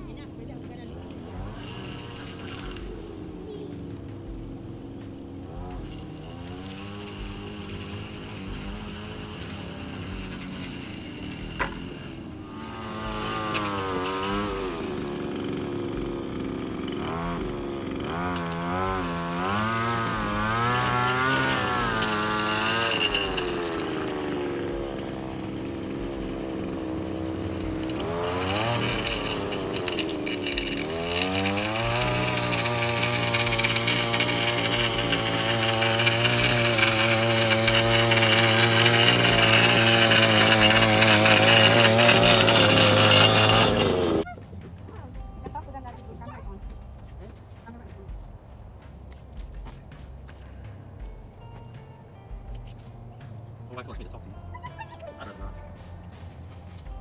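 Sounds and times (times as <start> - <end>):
electric string trimmer motor: 0.0 - 44.3.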